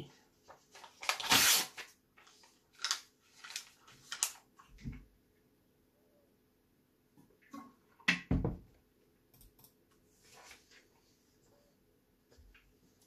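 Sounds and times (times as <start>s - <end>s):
paper tearing with teeth: 1.0s - 1.9s.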